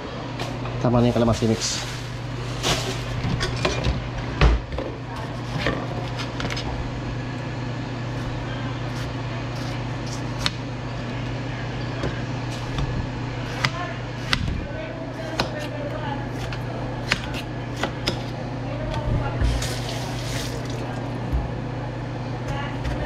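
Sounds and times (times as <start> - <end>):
steady low hum: 0.0 - 23.0
plastic bag rustling: 1.1 - 3.2
knife slicing tomatoes: 13.4 - 14.5, 15.2 - 18.3.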